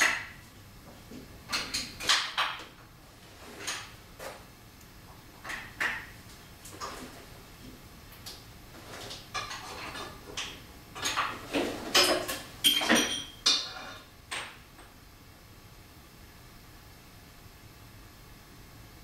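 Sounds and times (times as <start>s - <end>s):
metal tools clinking and scraping: 11.0s - 14.1s.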